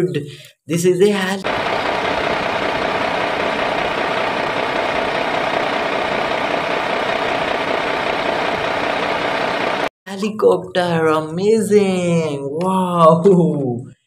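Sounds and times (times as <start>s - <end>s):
helicopter engine and rotor noise: 1.4s - 9.9s.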